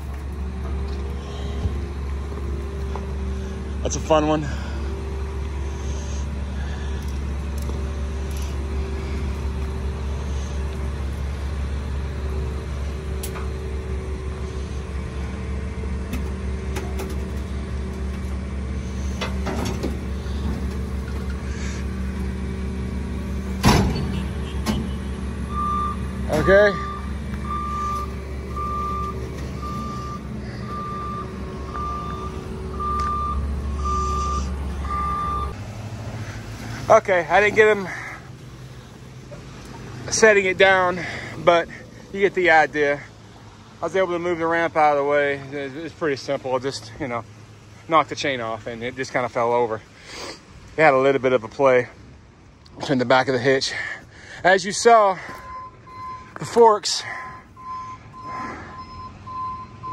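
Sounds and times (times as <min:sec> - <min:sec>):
engine running steadily: 0:00.0 - 0:59.9
backup alarm beeping: 0:24.0 - 0:35.6, 0:55.2 - 0:56.4, 0:57.3 - 0:59.9.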